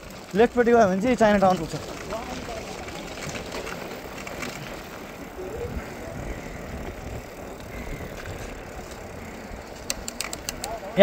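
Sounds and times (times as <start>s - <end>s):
bike tyres on road: 0.0s - 11.0s
wind on microphone: 5.2s - 9.8s.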